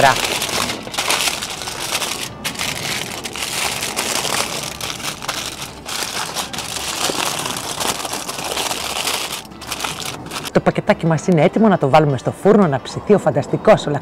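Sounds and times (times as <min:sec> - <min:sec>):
aluminium foil crinkling: 0:00.0 - 0:10.6.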